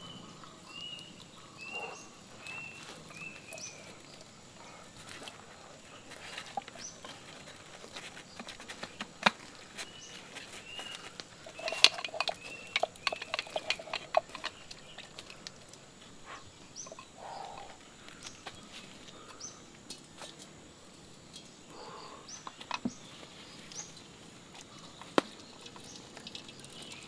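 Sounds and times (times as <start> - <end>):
faint bird chirps: 0.0 - 4.8, 9.7 - 15.5, 16.2 - 19.7
fingers tapping in a shell bowl: 11.4 - 15.5.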